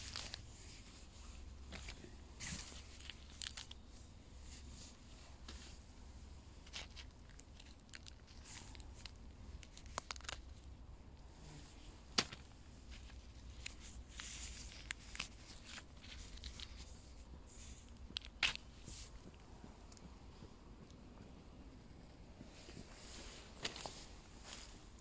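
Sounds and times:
mushrooms crackling and snapping: 0:00.0 - 0:00.5, 0:01.7 - 0:03.9, 0:06.6 - 0:11.3, 0:12.0 - 0:20.1.

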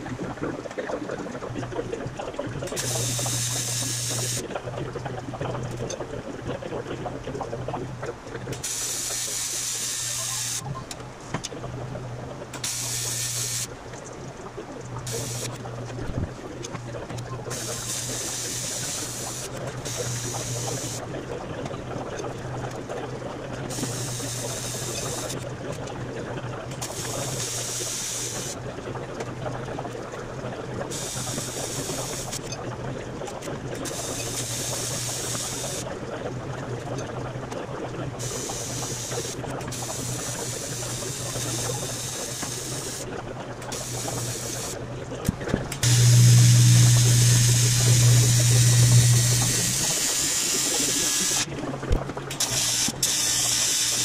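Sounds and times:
welder low buzz: 0:02.7 - 0:04.4, 0:08.6 - 0:10.7, 0:12.5 - 0:13.8, 0:15.0 - 0:21.1, 0:45.7 - 0:54.0
welding arc hiss: 0:02.8 - 0:04.4, 0:08.6 - 0:10.6, 0:12.6 - 0:13.7, 0:15.1 - 0:15.6, 0:17.6 - 0:21.0, 0:23.8 - 0:25.4, 0:26.8 - 0:28.6, 0:31.0 - 0:32.4, 0:33.9 - 0:35.9, 0:38.3 - 0:43.0, 0:43.7 - 0:44.8, 0:45.8 - 0:51.5, 0:52.4 - 0:54.0.

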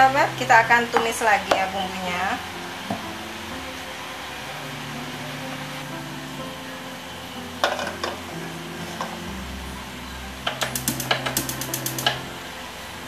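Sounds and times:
soft background music: 0:00.0 - 0:13.0
gas hob igniter clicking: 0:10.4 - 0:12.3.

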